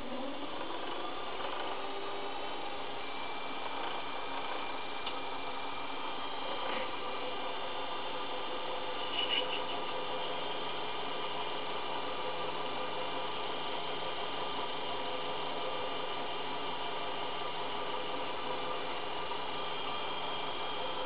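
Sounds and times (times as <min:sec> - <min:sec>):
lathe motor whine: 0:00.0 - 0:21.0
high-pitched screech: 0:09.0 - 0:09.9.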